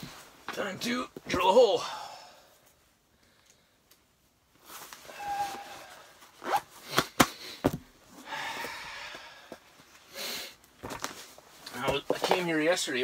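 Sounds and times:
clothing rustling: 0:00.0 - 0:01.5, 0:04.1 - 0:08.2, 0:09.6 - 0:13.0.

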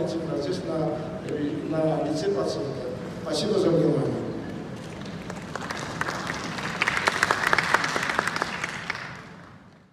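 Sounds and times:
audience applauding: 0:04.9 - 0:09.6.

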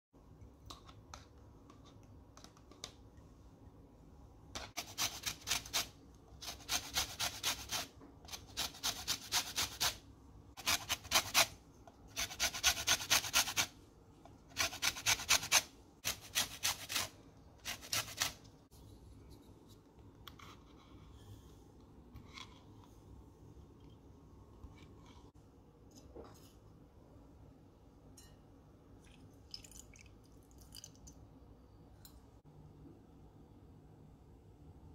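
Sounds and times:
grater scraping lemon rind: 0:04.6 - 0:10.0, 0:10.6 - 0:13.7, 0:14.5 - 0:18.4.

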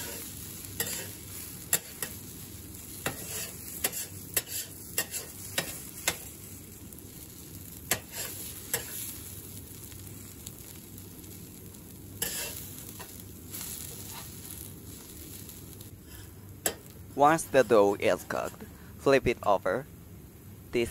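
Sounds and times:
metal spatula scraping griddle: 0:00.0 - 0:02.2, 0:02.9 - 0:06.4, 0:07.8 - 0:09.2, 0:12.2 - 0:15.4
batter sizzling on griddle: 0:00.0 - 0:18.6.

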